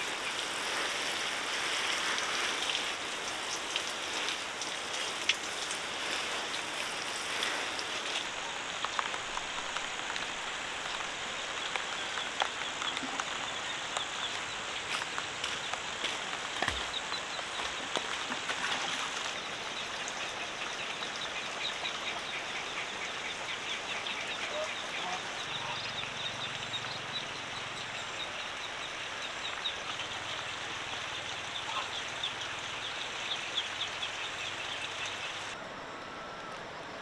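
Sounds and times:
steady hiss: 0.0 - 37.0.

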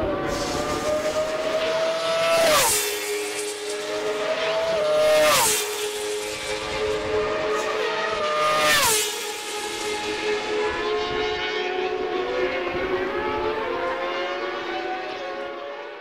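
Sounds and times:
race motorcycle engine: 0.0 - 15.8.

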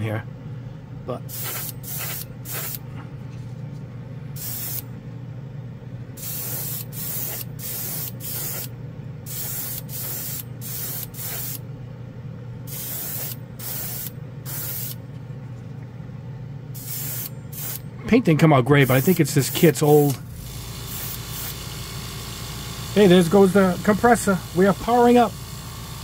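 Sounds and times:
steady low hum: 0.0 - 26.0
airbrush spraying hissing bursts: 1.3 - 2.8, 4.4 - 4.9, 6.2 - 8.7, 9.3 - 11.6, 12.7 - 15.0, 16.8 - 17.8, 18.8 - 26.0.

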